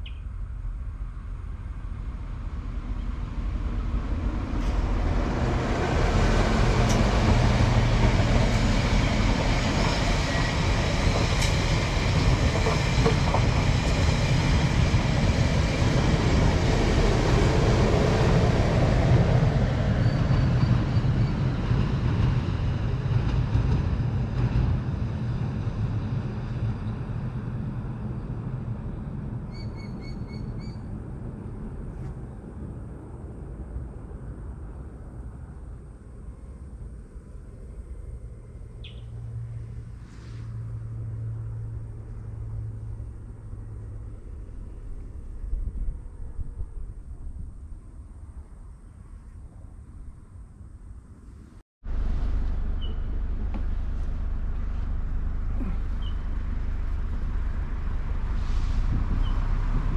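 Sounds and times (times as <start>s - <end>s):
short bird calls: 0.0s - 0.3s, 38.8s - 39.1s, 55.6s - 56.3s
diesel train passing: 0.0s - 59.9s.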